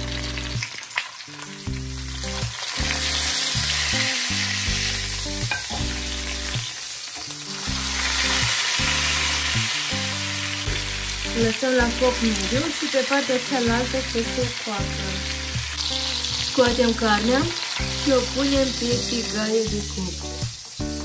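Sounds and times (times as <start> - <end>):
pork sizzling in a frying pan: 0.0 - 21.0.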